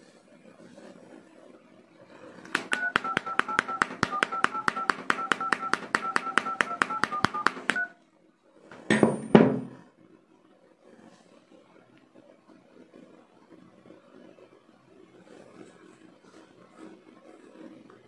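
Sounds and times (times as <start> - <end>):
hammer tapping touchscreen: 2.5 - 7.9
two-tone keypad beeps: 2.5 - 8.0.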